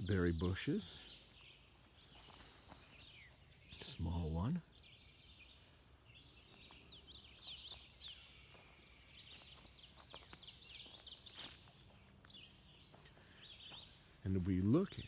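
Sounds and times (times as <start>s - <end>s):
small birds chirping faintly: 0.0s - 15.0s.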